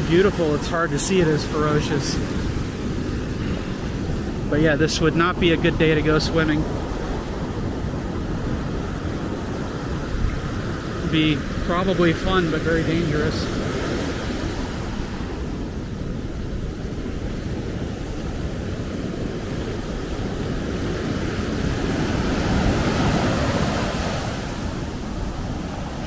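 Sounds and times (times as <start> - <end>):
foamy water washing up beach: 0.0 - 26.0
ocean surf breaking: 0.0 - 26.0.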